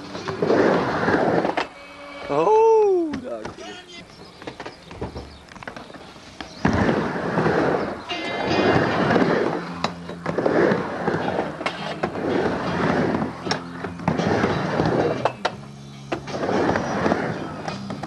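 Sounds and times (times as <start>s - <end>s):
skateboard wheels rolling on ramp: 0.0s - 18.0s.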